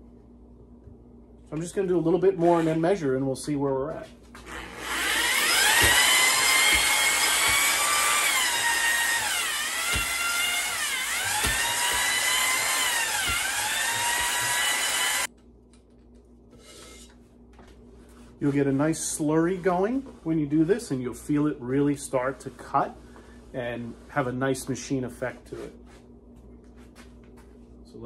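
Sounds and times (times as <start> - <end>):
electric drill motor whine: 4.4 - 15.3.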